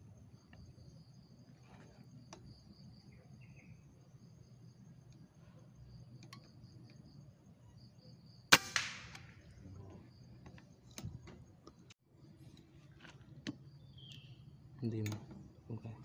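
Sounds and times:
insects trilling: 0.0 - 11.9, 13.2 - 16.0
small clicks: 6.1 - 7.0, 13.4 - 15.4
air rifle shot crack: 8.5 - 9.5.

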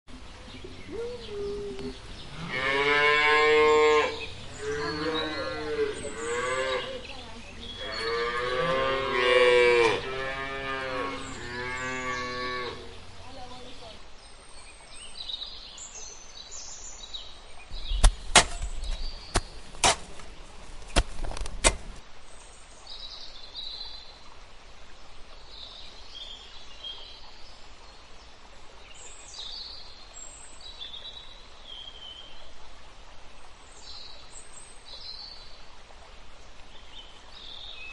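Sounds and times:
cattle mooing: 2.4 - 7.0, 7.8 - 12.9
sharp knocks: 18.0 - 20.2.

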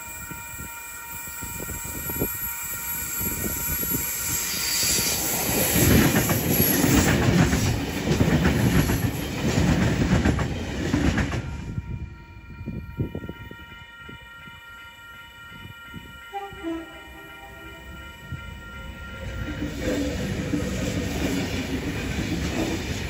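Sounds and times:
train passing: 0.0 - 23.0
wheels clattering on rails: 5.6 - 11.5, 19.5 - 23.0.

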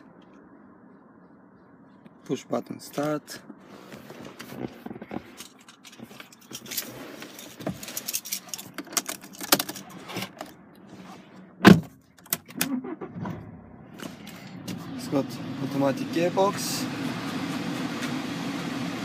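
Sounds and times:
keys jangling and clicking: 5.4 - 9.8.

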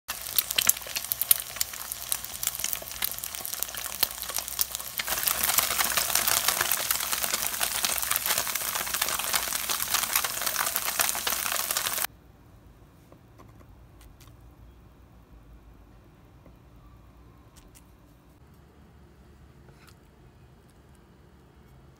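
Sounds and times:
oil sizzling in a frying pan: 0.1 - 12.1.

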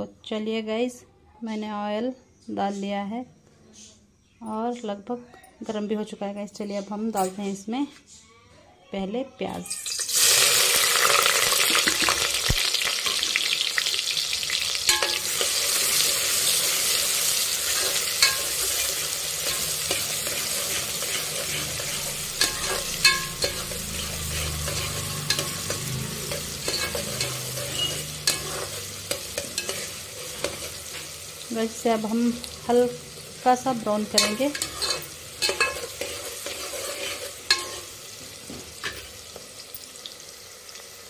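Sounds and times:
onions sizzling in hot oil: 9.7 - 41.0
metal spoon scraping a pot: 14.9 - 31.2, 34.1 - 38.1.

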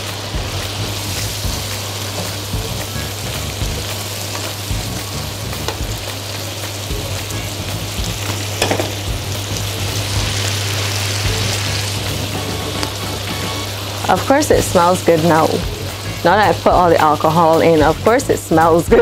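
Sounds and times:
steady low hum: 0.0 - 4.0, 9.1 - 17.0
vegetables sizzling in frying pan: 0.0 - 19.0.

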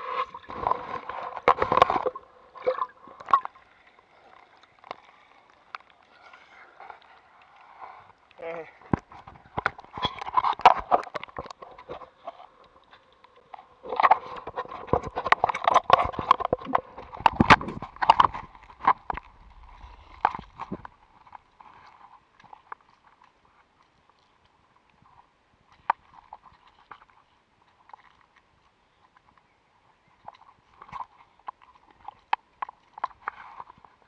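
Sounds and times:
water sloshing against camera housing: 0.1 - 3.7, 8.8 - 23.2
water dripping: 0.4 - 6.0.

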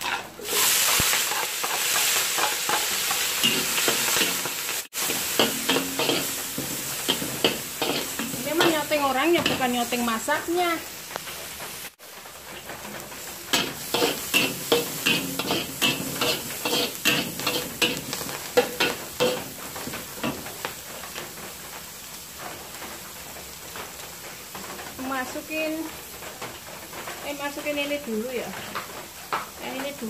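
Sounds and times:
metal spatula scraping a wok: 0.0 - 10.1, 13.5 - 19.6
food sizzling in hot oil: 0.0 - 30.0.

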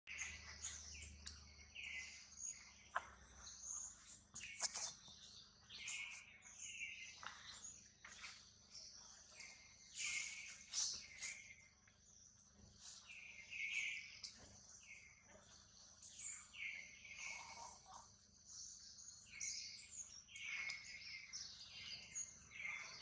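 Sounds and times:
short chirping calls: 0.1 - 8.4, 16.0 - 18.1.

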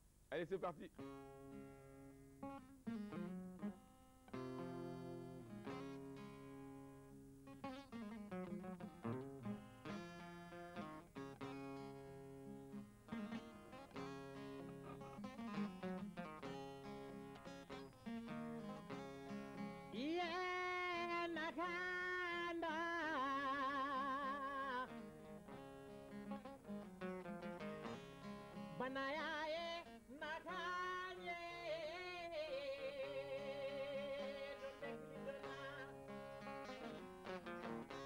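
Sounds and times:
fingerpicked acoustic guitar: 0.9 - 38.0
person singing with vibrato: 19.9 - 25.0, 28.7 - 36.1.

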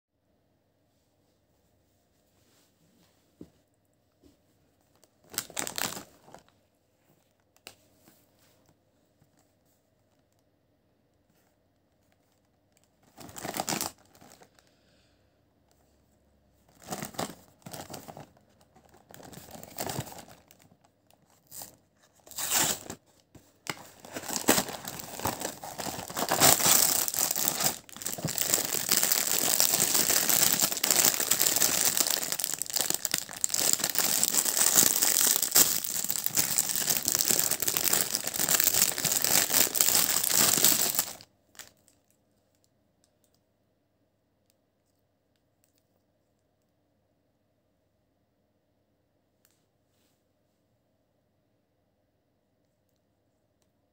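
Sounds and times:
plastic wrapper crinkling: 4.9 - 6.6, 12.2 - 14.6, 16.7 - 42.6.

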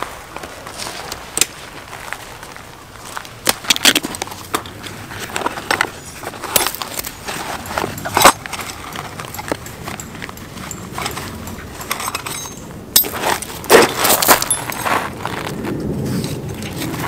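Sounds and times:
rummaging in fabric box: 4.0 - 12.3.

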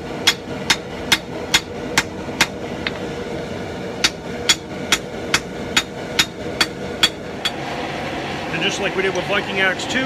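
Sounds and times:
hammer striking steel on anvil: 0.2 - 2.6, 4.0 - 7.6.

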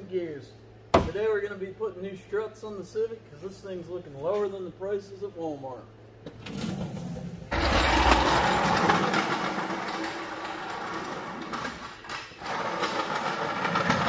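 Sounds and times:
jack wheels rolling on concrete: 6.4 - 14.0.

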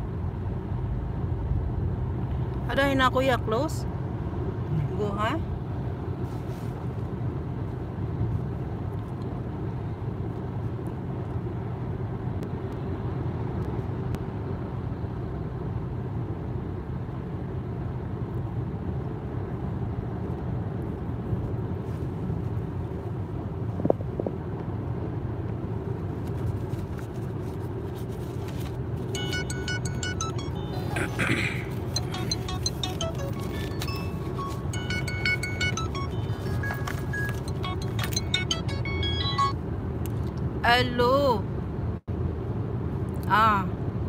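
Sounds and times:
car road and engine rumble: 0.0 - 44.0.

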